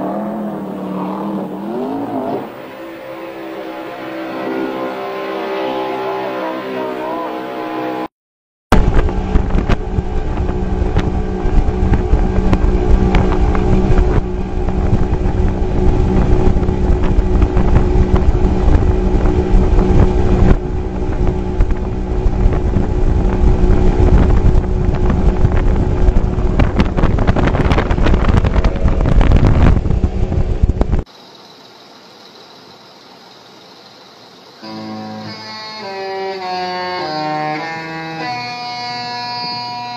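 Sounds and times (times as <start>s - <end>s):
wind buffeting microphone: 8.7s - 31.1s
outboard engine at high speed: 8.8s - 31.0s.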